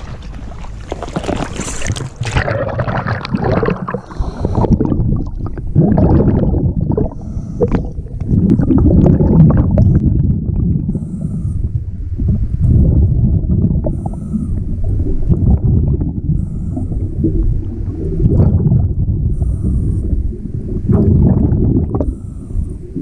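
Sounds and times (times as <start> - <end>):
water splashing: 0.0 - 10.7
muffled underwater sloshing: 0.0 - 23.0.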